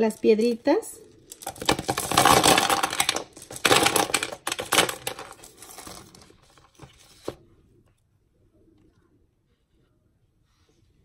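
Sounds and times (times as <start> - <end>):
stones rattling in plastic pot: 1.2 - 7.3.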